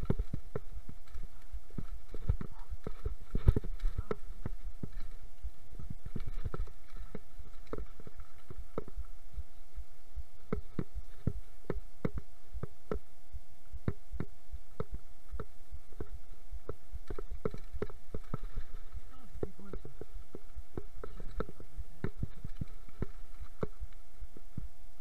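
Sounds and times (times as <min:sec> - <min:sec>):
bike rattling over stony trail: 0:00.0 - 0:09.2, 0:17.0 - 0:23.9
tyre and wind rumble: 0:00.0 - 0:12.8.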